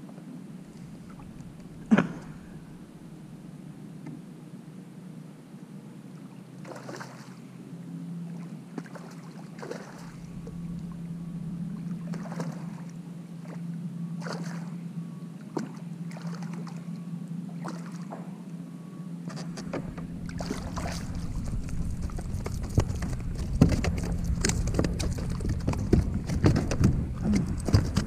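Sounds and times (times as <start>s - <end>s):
steady low hum: 0.0s - 28.0s
water splashing against kayak: 6.6s - 7.4s, 8.3s - 11.0s, 11.8s - 13.6s, 14.2s - 14.8s, 17.6s - 18.2s, 19.3s - 28.0s.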